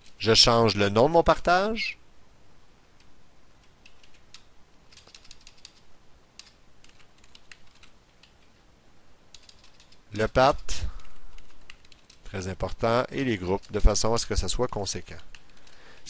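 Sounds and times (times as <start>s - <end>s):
computer keyboard clicks: 3.6s - 5.8s, 6.4s - 8.6s, 9.3s - 10.0s, 11.0s - 12.3s, 15.3s - 15.8s.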